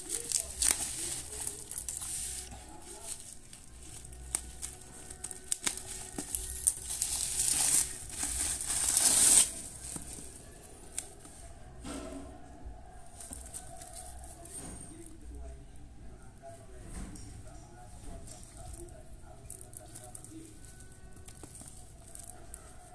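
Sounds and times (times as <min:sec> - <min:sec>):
sharp crackles: 0:00.0 - 0:09.9
bubble wrap crinkling: 0:00.0 - 0:11.6, 0:13.1 - 0:15.3, 0:18.1 - 0:22.9.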